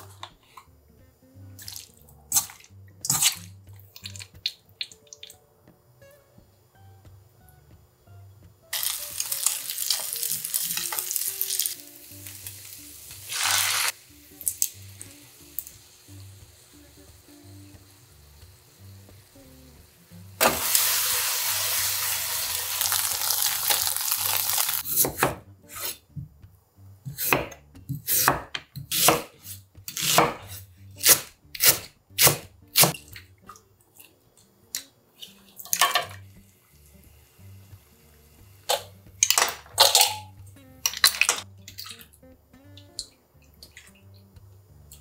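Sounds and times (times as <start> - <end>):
soft background music: 0.0 - 45.0
steady hiss: 8.7 - 24.8
knife chopping on wooden board: 27.1 - 29.3, 29.9 - 33.0.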